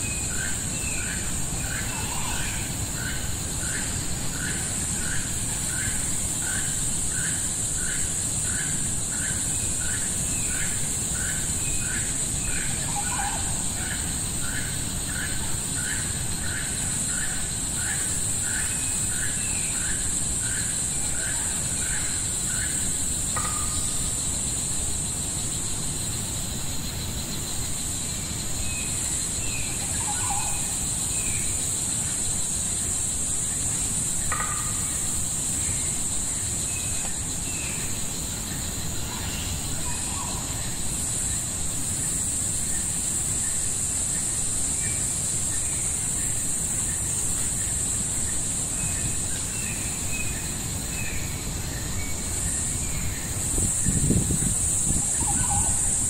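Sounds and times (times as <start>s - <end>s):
insect drone: 0.0s - 56.0s
bird calls: 28.8s - 31.5s, 34.2s - 35.2s, 54.9s - 56.0s.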